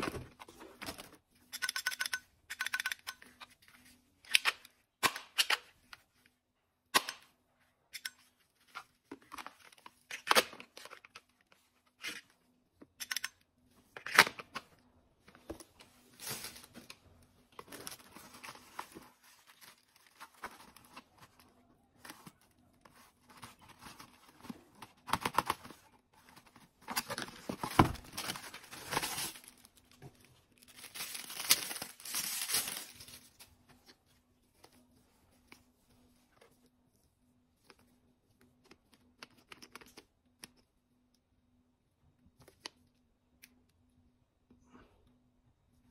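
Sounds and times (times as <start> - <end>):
packaging rustling and tearing: 16.0 - 21.4, 22.0 - 33.6.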